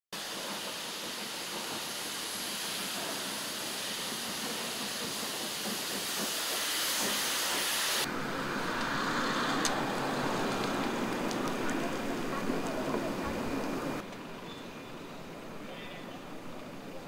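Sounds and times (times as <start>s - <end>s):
steam locomotive venting steam: 0.1s - 17.0s.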